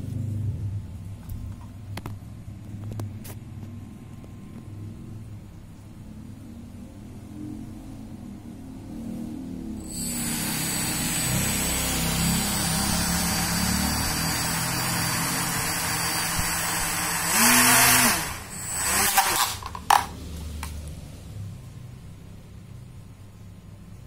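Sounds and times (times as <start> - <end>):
small electric motor whirring: 9.8 - 19.8.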